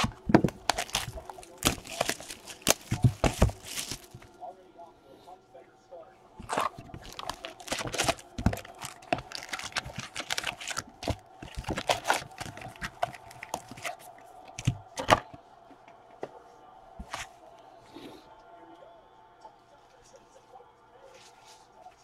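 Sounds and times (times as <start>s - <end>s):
foil packs crinkling: 0.0s - 4.3s, 6.4s - 15.2s.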